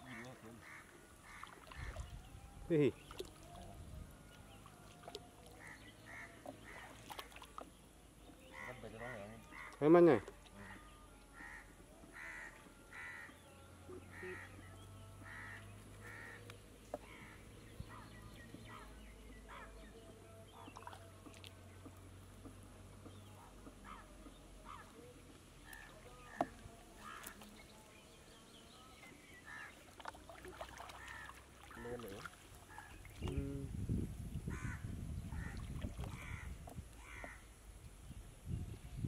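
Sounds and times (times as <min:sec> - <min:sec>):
light water sounds: 0:00.0 - 0:34.6, 0:35.2 - 0:38.1
birds calling: 0:00.0 - 0:38.2.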